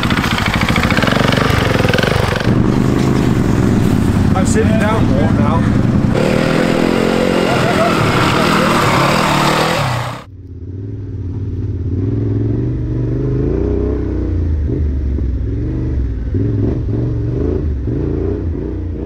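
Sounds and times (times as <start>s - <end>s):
muffled motorcycle engine revving: 0.0s - 19.0s.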